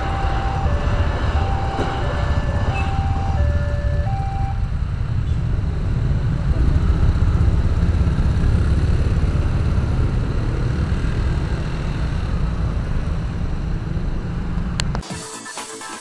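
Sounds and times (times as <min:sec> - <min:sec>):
electronic music: 0:00.0 - 0:04.6, 0:15.0 - 0:16.0
motorcycles and scooters pulling away: 0:00.0 - 0:14.8.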